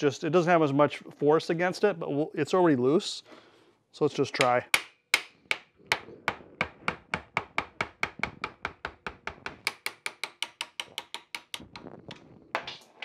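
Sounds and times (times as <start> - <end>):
hammer tapping a steel punch: 4.4 - 11.7.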